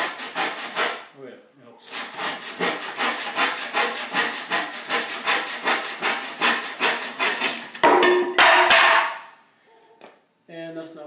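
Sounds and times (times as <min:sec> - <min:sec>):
hand saw cutting wood: 0:00.0 - 0:01.1, 0:01.8 - 0:07.8.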